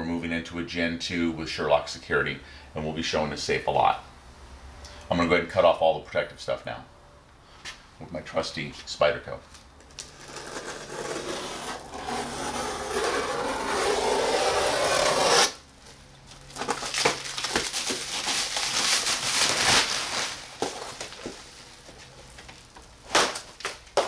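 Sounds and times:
plastic film crinkling: 0:16.2 - 0:24.0
plastic wrap tearing: 0:16.4 - 0:21.8, 0:23.0 - 0:24.0.

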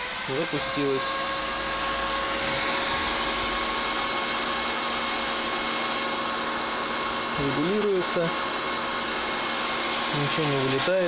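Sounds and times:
cooling fan blowing: 0:00.0 - 0:11.0.

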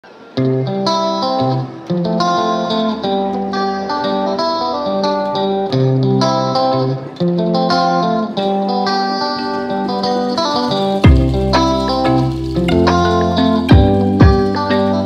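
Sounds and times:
plucked melody: 0:00.4 - 0:15.0
sustained low bass notes: 0:11.0 - 0:14.6.

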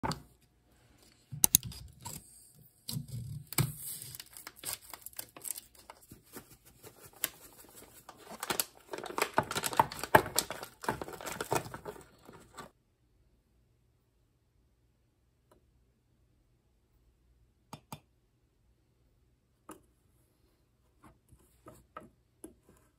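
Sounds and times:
crinkling: 0:02.8 - 0:12.7.

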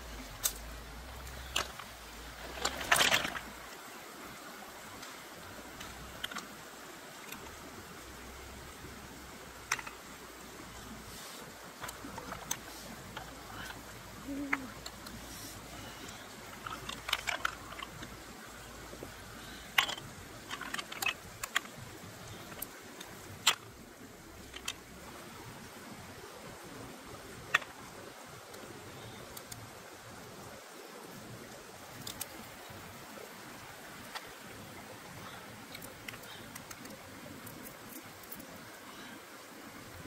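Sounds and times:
stream rushing: 0:00.0 - 0:40.0
snail shells clicking: 0:09.6 - 0:10.2, 0:16.0 - 0:25.2, 0:35.6 - 0:38.7.

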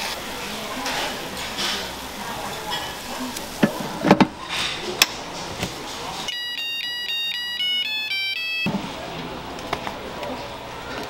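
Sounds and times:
tongs and waffle iron clattering: 0:00.8 - 0:01.9
electronic beeping melody: 0:06.3 - 0:08.7.

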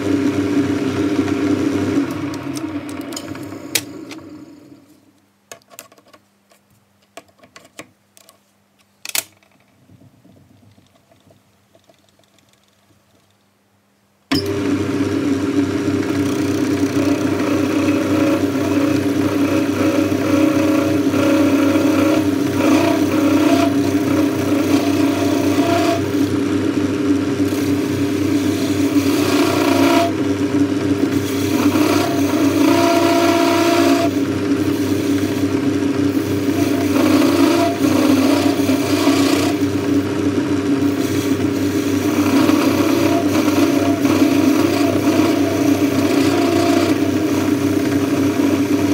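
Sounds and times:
cutting tool whine: 0:14.3 - 0:48.9
metal lathe geared hum: 0:14.3 - 0:48.9.

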